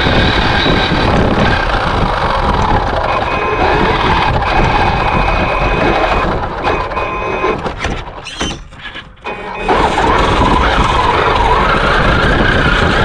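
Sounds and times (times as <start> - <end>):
electric motor whining: 0.0 - 7.6
tyres and blade through snow: 9.3 - 13.0.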